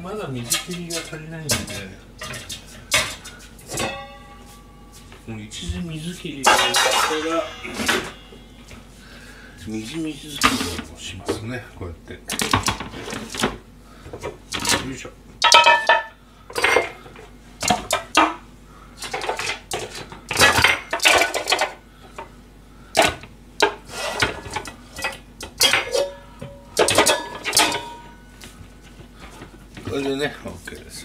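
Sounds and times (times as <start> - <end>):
metal pots clanking: 1.6 - 4.7, 6.4 - 8.8, 15.4 - 17.0, 23.0 - 28.3.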